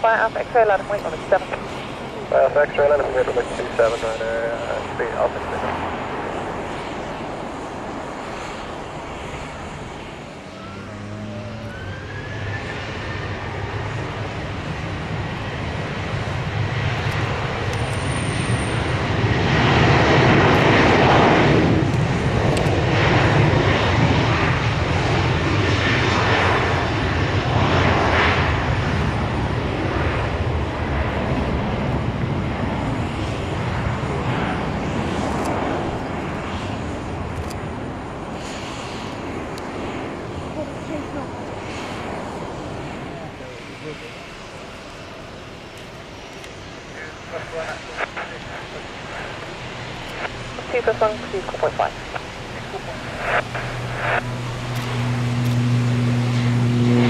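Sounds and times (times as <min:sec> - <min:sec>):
jet airliner engines: 0:00.0 - 0:57.0
thin rising whine: 0:08.2 - 0:14.3, 0:46.8 - 0:57.0.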